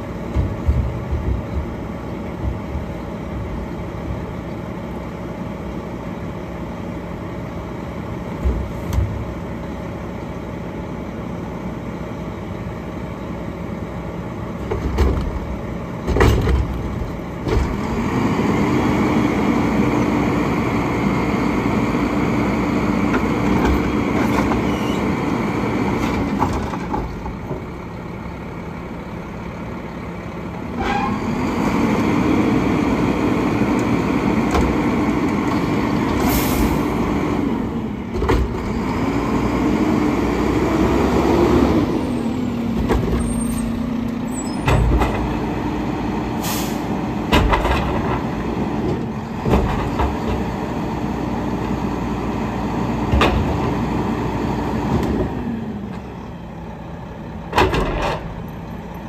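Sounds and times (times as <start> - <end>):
hydraulics: 14.4 - 50.9
truck engine revving: 16.6 - 26.9, 30.6 - 55.9.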